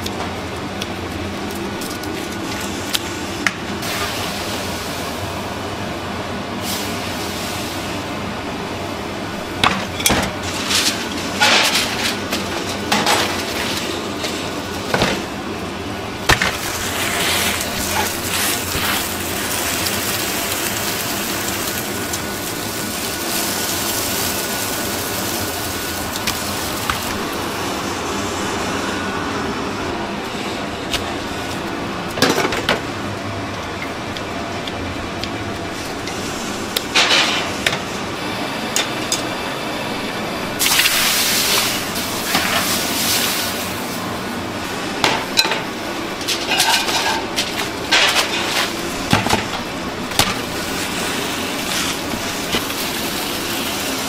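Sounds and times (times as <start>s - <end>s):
metal cookware clattering: 46.2s - 49.4s.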